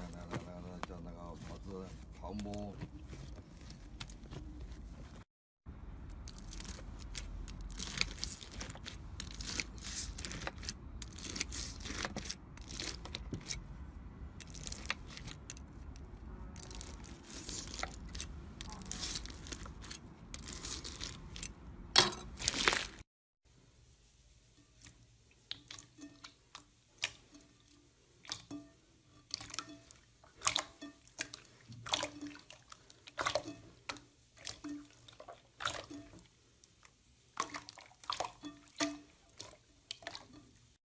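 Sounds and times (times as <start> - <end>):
slime crackling and crunching: 6.1 - 13.3, 14.4 - 21.6, 22.2 - 23.0.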